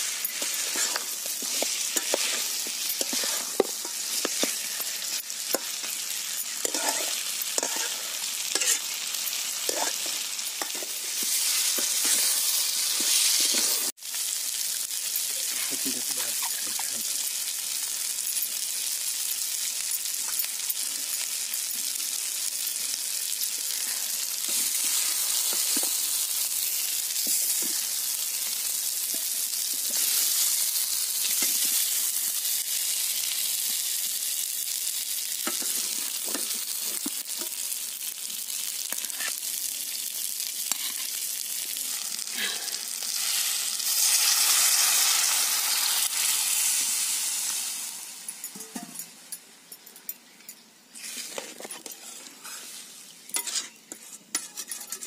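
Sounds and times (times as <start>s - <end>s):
steady sizzling hiss: 0.0s - 55.0s
spoon clinking on steel plate: 53.4s - 55.0s.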